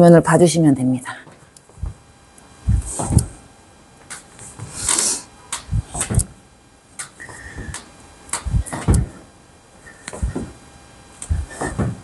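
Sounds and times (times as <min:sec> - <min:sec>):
shoes thumping on wooden floor: 0:11.4 - 0:12.0.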